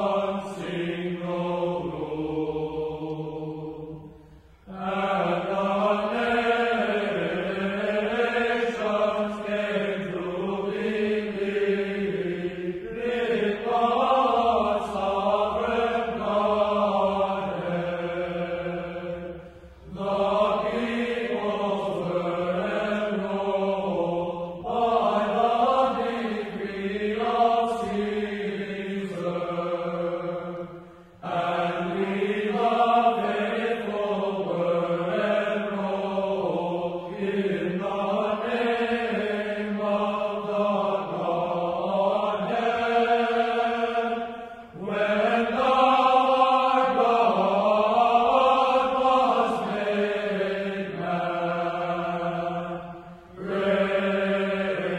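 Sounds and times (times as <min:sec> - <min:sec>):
sung church chant: 0:00.0 - 0:54.9.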